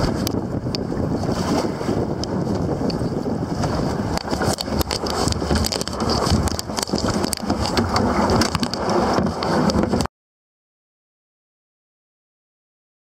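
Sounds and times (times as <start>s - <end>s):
wind buffeting microphone: 0.0s - 10.1s.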